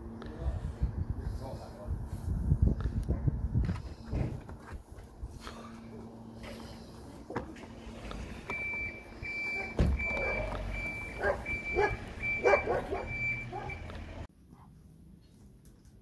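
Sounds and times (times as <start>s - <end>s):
vehicle reversing alarm beeping: 8.2s - 14.3s
dog barking: 9.5s - 13.8s
dull thump: 9.6s - 10.3s.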